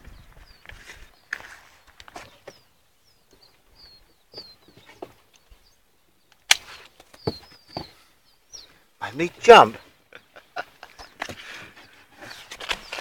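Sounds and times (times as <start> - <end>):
chicks cheeping: 0.0 - 13.0
young pheasants peeping: 0.0 - 13.0
handling knocks and rustles: 11.1 - 13.0.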